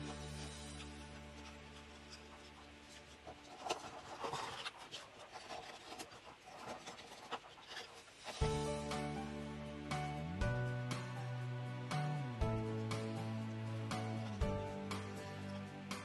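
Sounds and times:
background music: 0:00.0 - 0:03.3, 0:08.4 - 0:16.0
paper rustling: 0:01.2 - 0:08.4.

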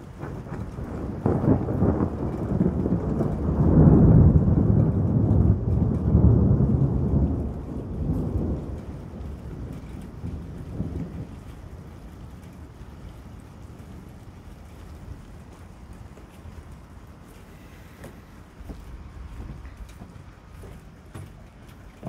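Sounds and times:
thunder rumbling: 0:00.0 - 0:22.0.

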